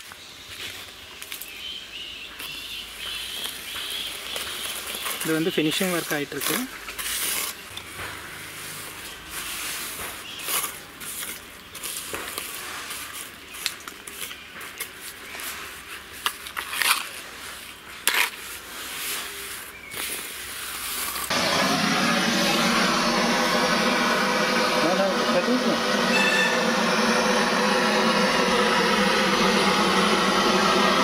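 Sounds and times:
trowel scraping wet cement: 4.6s - 21.3s
loud steady sound: 21.3s - 31.0s.

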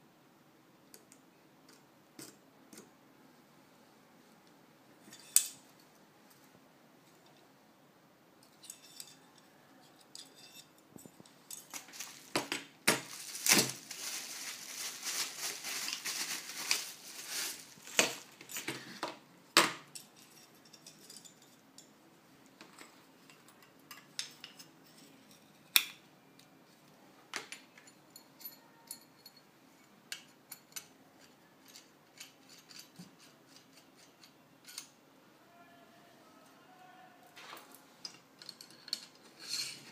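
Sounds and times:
metal parts clicking and clinking: 5.0s - 5.6s, 8.4s - 13.9s, 38.0s - 39.9s
scraping and rustling handling: 8.5s - 19.2s, 37.3s - 39.9s.

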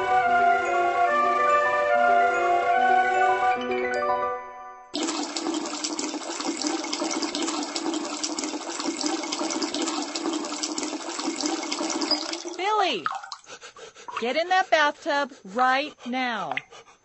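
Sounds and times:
tap running into bathtub: 5.0s - 13.5s.

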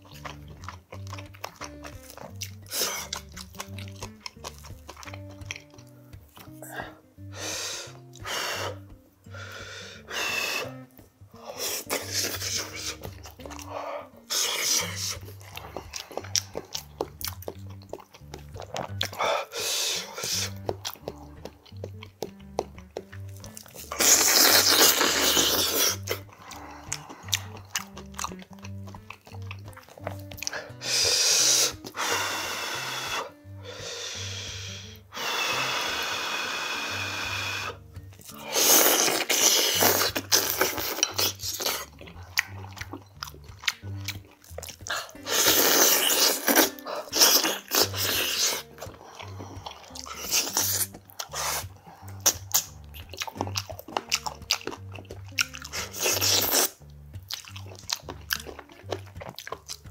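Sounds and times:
chewing: 0.0s - 59.9s
quiet background music: 0.0s - 59.9s
loud slurping and sucking: 2.0s - 3.8s, 6.4s - 17.2s, 18.6s - 21.2s, 23.7s - 28.0s, 30.5s - 42.7s, 44.9s - 52.8s, 55.7s - 56.8s.

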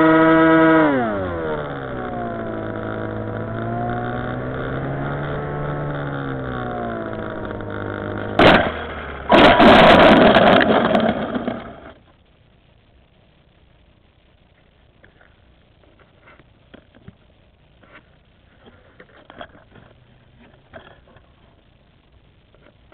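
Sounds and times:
model plane motor and propeller: 0.0s - 8.2s.

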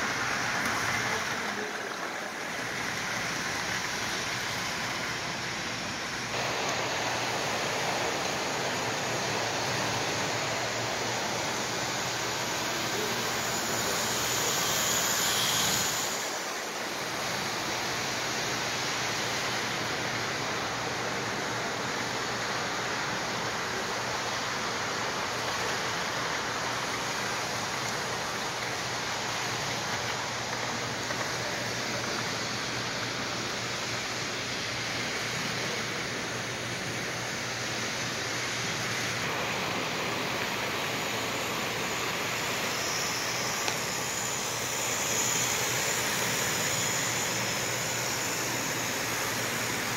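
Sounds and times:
model train rolling on metal rails: 0.0s - 20.8s, 40.3s - 49.9s.

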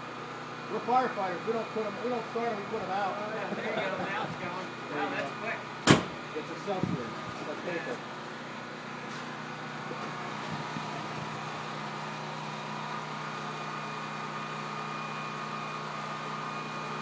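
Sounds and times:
steady machine hum: 0.0s - 17.0s.

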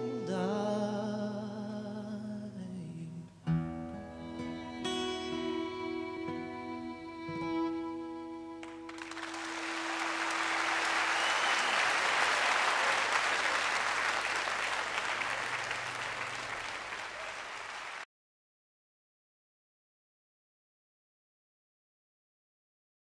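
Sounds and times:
acoustic guitar notes ringing: 0.0s - 1.6s, 2.6s - 8.9s
audience applause: 8.6s - 18.0s.

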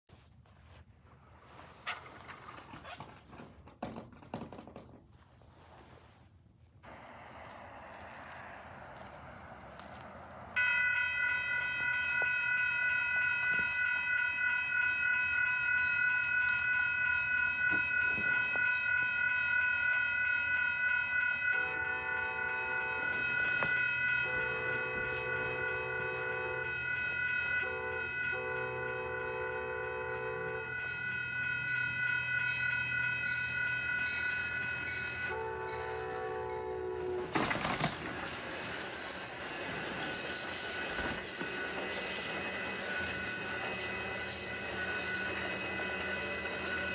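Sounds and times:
crossing signal ringing: 6.8s - 46.9s
train horn: 21.5s - 31.6s, 35.2s - 37.5s.

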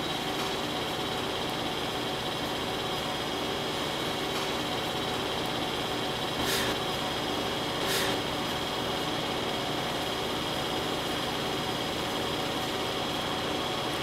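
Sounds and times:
potter's wheel humming: 0.0s - 14.0s
brief scrape: 6.4s - 6.8s, 7.8s - 8.2s.

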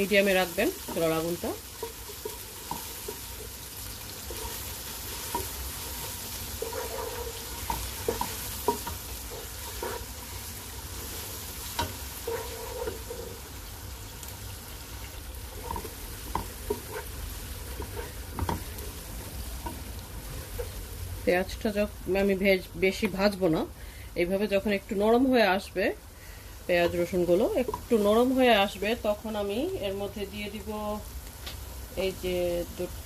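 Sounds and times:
wooden spatula scraping pot: 0.0s - 13.5s, 15.4s - 20.9s
onion sizzling in hot oil: 0.0s - 33.0s.

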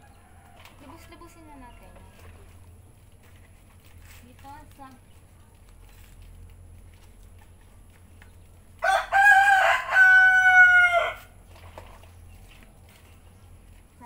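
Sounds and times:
rooster crowing: 0.0s - 2.2s, 8.8s - 11.4s.

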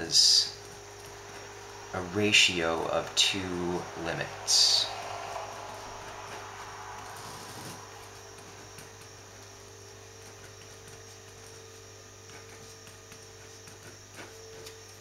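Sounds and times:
steady low hum: 0.0s - 15.0s
pen scratching on paper: 7.0s - 9.2s, 10.0s - 14.9s.

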